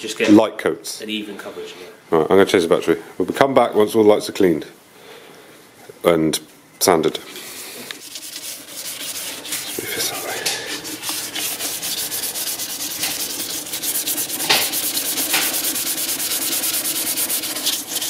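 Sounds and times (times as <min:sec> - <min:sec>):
sandpaper rubbing plastic lens: 0:08.0 - 0:18.0.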